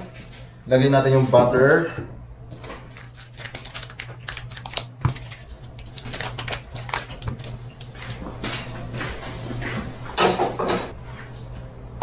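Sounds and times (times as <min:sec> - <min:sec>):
foil wrapper crinkling: 0:02.8 - 0:08.2.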